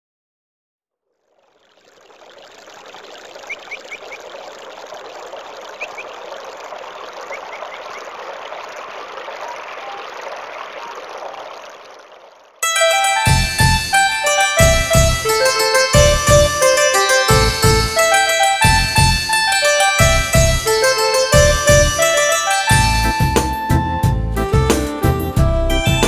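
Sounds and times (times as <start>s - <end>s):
running water: 1.0s - 23.7s
high bird chirps: 1.6s - 4.4s, 5.6s - 6.4s, 7.2s - 8.1s
keyboard music: 12.6s - 26.0s.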